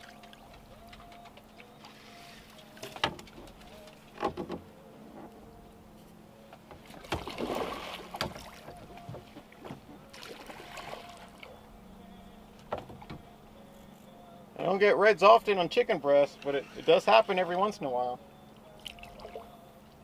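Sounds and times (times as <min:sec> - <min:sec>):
low steady hum: 0:00.0 - 0:20.0
fish splashing at water surface: 0:07.0 - 0:08.7.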